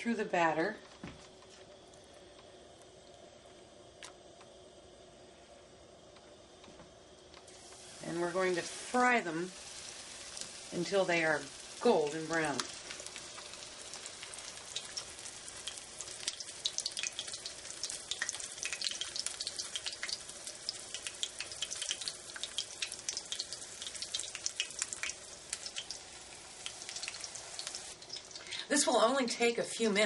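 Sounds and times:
chicken sizzling in hot oil: 0:07.5 - 0:29.1.

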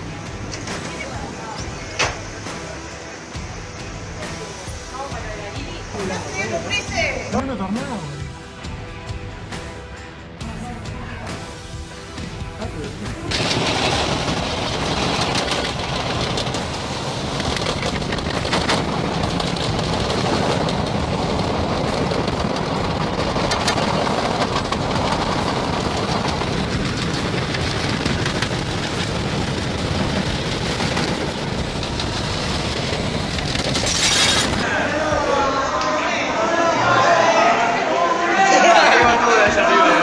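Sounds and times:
debris rattling on car body: 0:13.2 - 0:34.6
strong wind around a car: 0:13.5 - 0:34.7.

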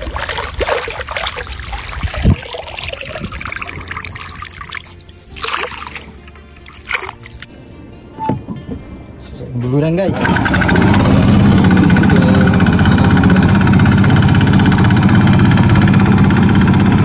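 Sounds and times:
water draining through net mesh: 0:00.0 - 0:07.5
water splashing and trickling: 0:00.0 - 0:07.5.

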